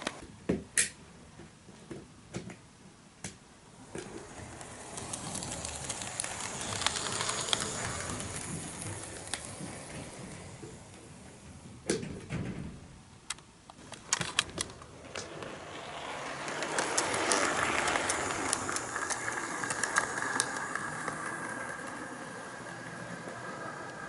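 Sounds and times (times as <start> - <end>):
model train wheels clicking: 3.8 - 11.4, 13.3 - 24.0
model train running: 3.9 - 11.4, 14.6 - 24.0.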